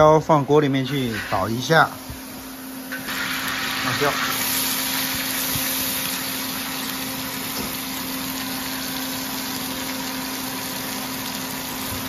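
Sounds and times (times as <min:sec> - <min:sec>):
steady machine hum: 0:00.0 - 0:12.0
peppers sizzling in a wok: 0:00.7 - 0:12.0.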